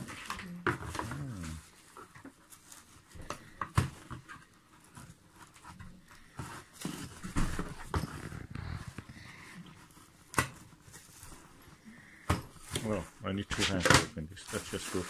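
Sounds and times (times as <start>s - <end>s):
cardboard rustling and scraping: 0.0s - 11.8s, 12.4s - 15.0s.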